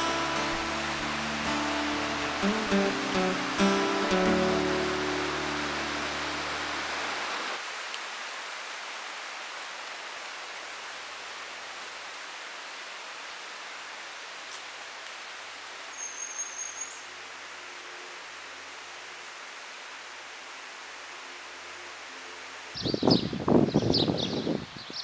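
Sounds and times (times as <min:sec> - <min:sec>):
flowing stream water: 0:00.0 - 0:12.6.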